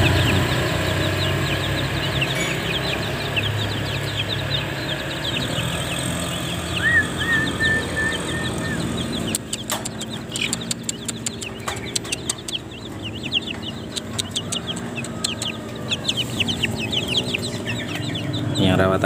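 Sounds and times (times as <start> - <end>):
chick peeping: 0.0 - 19.0
sharp clicks and taps: 8.6 - 15.7.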